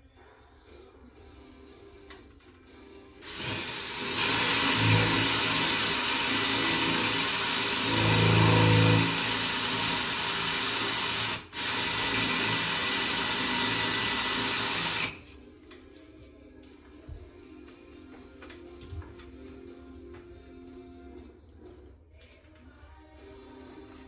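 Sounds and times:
cordless drill boring into wall: 0:03.2 - 0:15.2.

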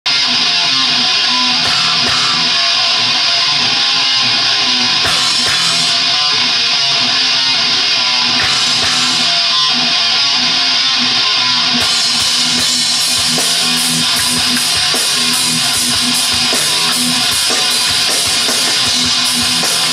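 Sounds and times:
heavy rock band playing: 0:00.0 - 0:19.9
cymbal crashes: 0:01.6 - 0:02.9, 0:05.0 - 0:06.3, 0:08.4 - 0:09.6.

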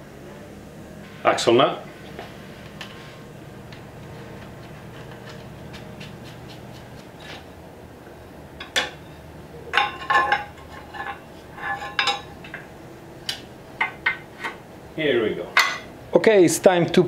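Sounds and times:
metal tools clanking: 0:08.6 - 0:12.6, 0:15.5 - 0:15.9.

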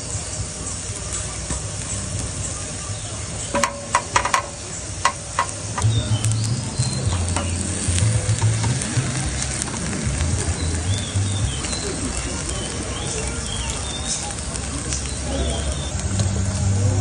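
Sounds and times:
bread sizzling in oil: 0:00.0 - 0:17.0
tongs clicking against pan: 0:03.6 - 0:05.9.

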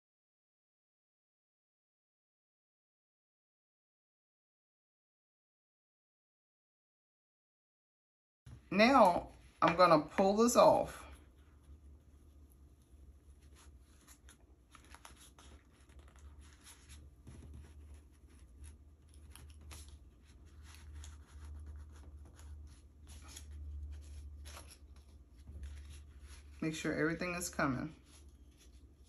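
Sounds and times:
steady low hum: 0:08.5 - 0:29.0
yarn scratching on cardboard: 0:15.0 - 0:29.0.

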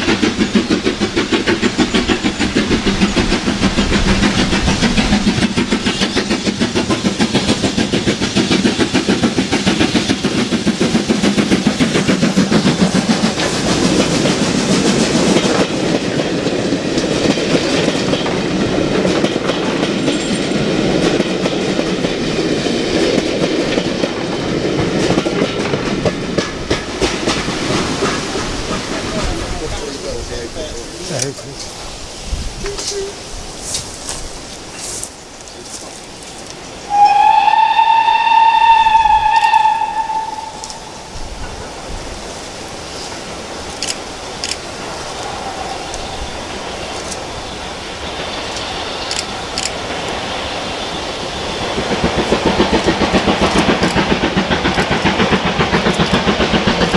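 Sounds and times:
wheels clicking over rail joints: 0:00.0 - 0:31.8, 0:51.6 - 0:56.9
steam locomotive exhaust beats: 0:00.0 - 0:56.9.

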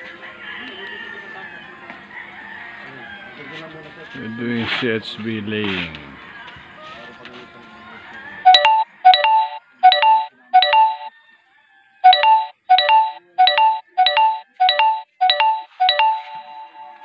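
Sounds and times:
electronic chime tones: 0:08.5 - 0:11.1, 0:12.0 - 0:17.0.

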